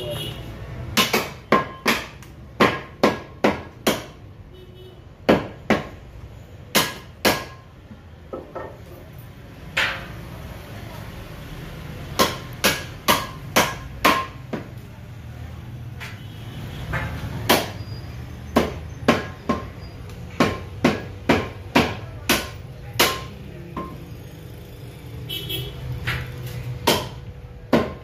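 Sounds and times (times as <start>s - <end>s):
meat cleaver chopping on wood: 0.9s - 4.2s, 18.5s - 19.7s, 20.3s - 23.3s, 26.8s - 28.0s.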